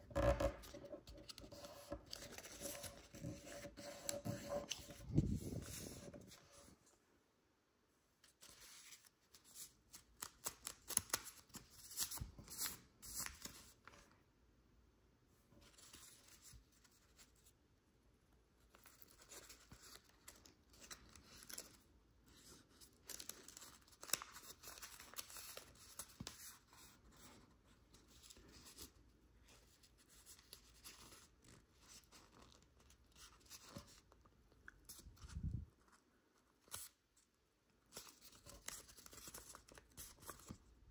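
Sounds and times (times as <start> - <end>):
paper rustling and crinkling: 0.5 - 6.9, 18.7 - 34.2, 37.9 - 40.7.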